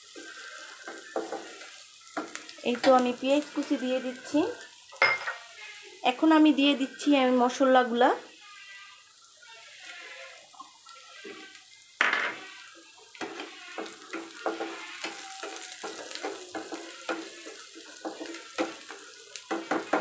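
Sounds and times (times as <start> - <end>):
onions sizzling in oil: 0.0 - 20.0
wooden spatula scraping pan: 13.2 - 20.0.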